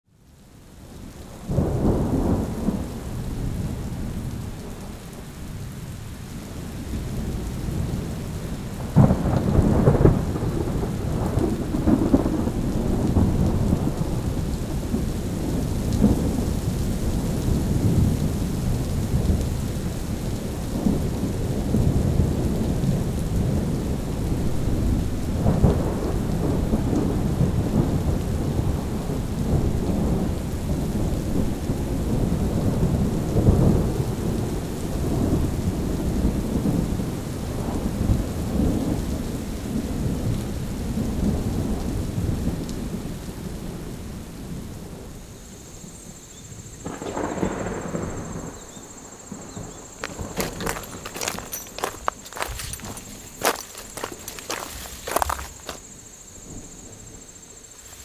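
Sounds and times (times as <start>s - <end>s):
steady rain: 0.1s - 58.0s
thunder rolling: 6.8s - 18.4s, 20.8s - 39.0s, 46.8s - 55.8s.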